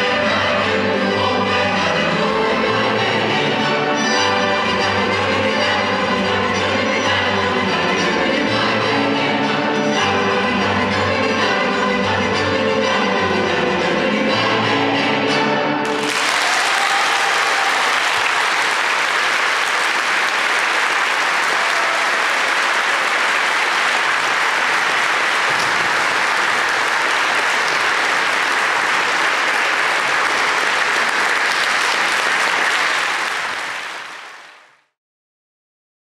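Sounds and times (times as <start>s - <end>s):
folk orchestra playing: 0.0s - 16.2s
audience applauding: 15.8s - 34.9s.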